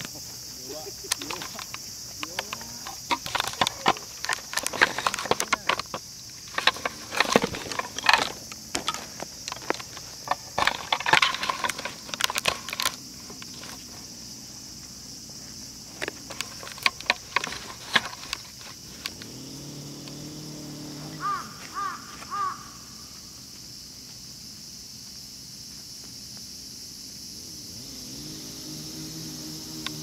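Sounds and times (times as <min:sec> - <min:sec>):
steady high hiss: 0:00.0 - 0:30.0
clicking and rattling: 0:00.8 - 0:14.1, 0:15.9 - 0:19.4.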